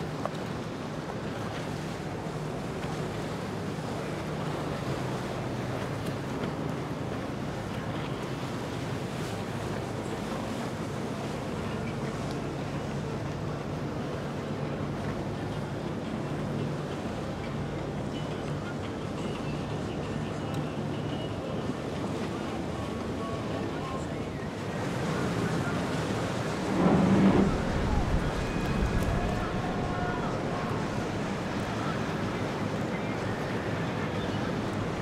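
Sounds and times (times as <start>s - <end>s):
outboard engines humming: 0.0s - 35.0s
water wash: 0.0s - 35.0s
wind on microphone: 25.4s - 32.8s.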